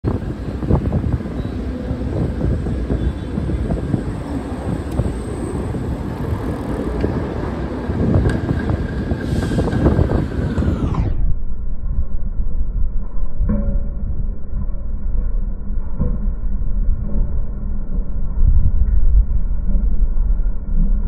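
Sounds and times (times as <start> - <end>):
streetcar on rails: 0.0 - 11.3
city traffic rumble: 0.0 - 11.4.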